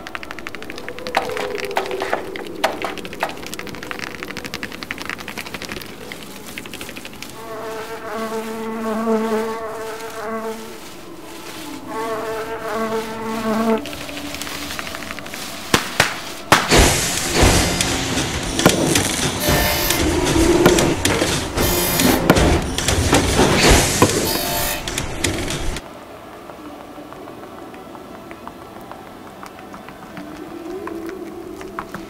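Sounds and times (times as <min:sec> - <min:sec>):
insect-like buzzing: 0:00.0 - 0:25.8
loud scraping: 0:06.6 - 0:25.8
sharp knocks: 0:15.7 - 0:25.8.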